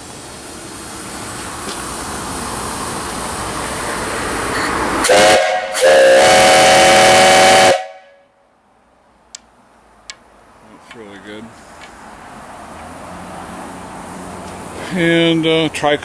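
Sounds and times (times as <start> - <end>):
steam hissing: 0.0 - 8.0, 12.6 - 15.9
loud steam whistle blast: 5.0 - 8.4.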